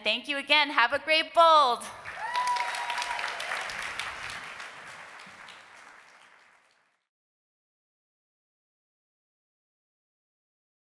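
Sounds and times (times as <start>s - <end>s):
audience cheering: 2.0s - 6.6s
audience applauding: 2.0s - 7.1s.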